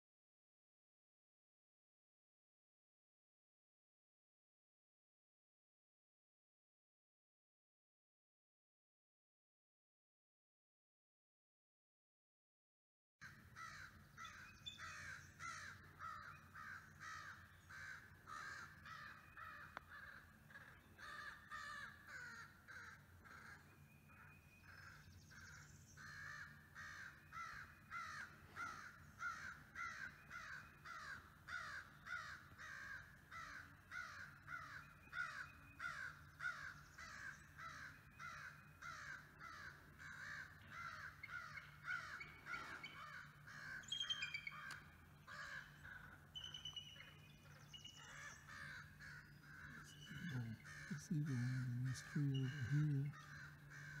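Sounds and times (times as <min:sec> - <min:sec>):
crow cawing rapidly: 0:13.2 - 0:23.7, 0:26.0 - 0:44.0, 0:44.6 - 0:46.2, 0:48.0 - 0:54.0.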